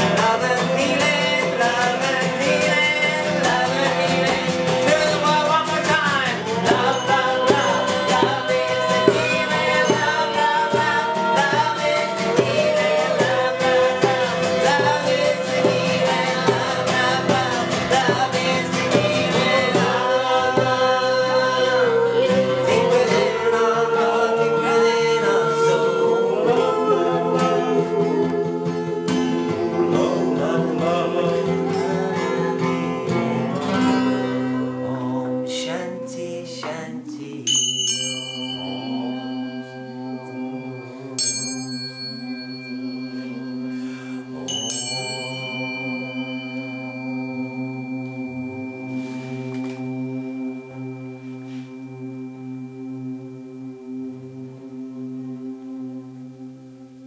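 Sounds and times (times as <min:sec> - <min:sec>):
group singing a chant: 0:00.0 - 0:37.5, 0:38.2 - 0:51.9
strummed acoustic guitars: 0:00.0 - 0:55.8
small metal bell struck: 0:06.7 - 0:11.7, 0:37.5 - 0:40.6, 0:41.2 - 0:48.8.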